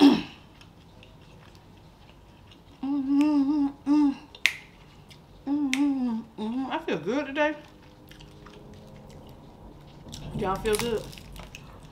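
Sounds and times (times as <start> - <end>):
woman chewing with mouth smacks: 0.2 - 6.7, 7.7 - 11.9
woman humming mmm: 2.8 - 4.3, 5.4 - 6.7.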